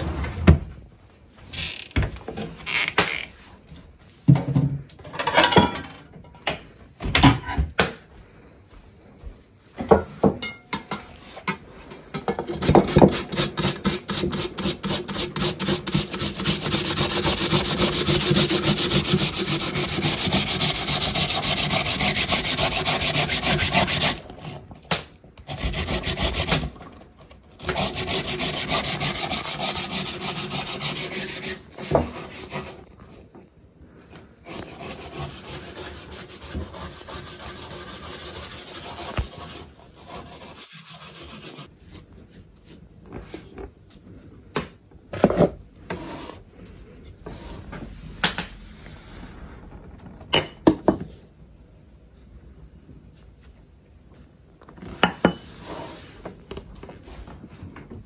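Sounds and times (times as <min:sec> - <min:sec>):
potatoes rasping on metal grater: 0:12.5 - 0:24.6, 0:25.4 - 0:32.8.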